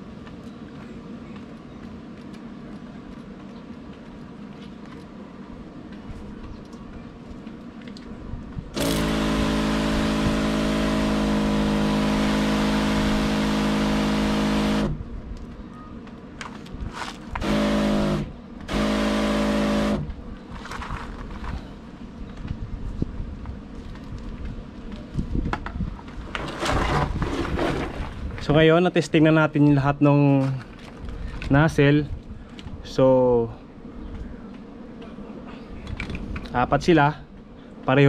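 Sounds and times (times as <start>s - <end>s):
electric pump humming: 8.6s - 15.1s, 17.3s - 20.3s.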